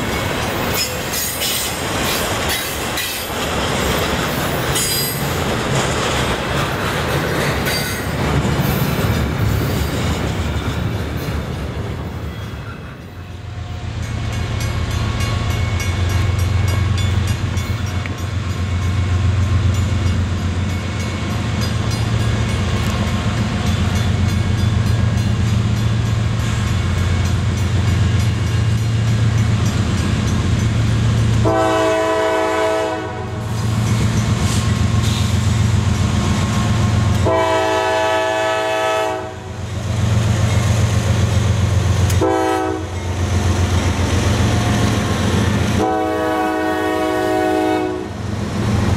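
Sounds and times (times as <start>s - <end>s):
diesel locomotive engine rumble: 0.0s - 48.9s
train wheels on rails: 0.0s - 48.9s
train air horn blasts: 31.4s - 33.7s, 37.2s - 39.6s, 42.1s - 43.0s, 45.7s - 48.2s.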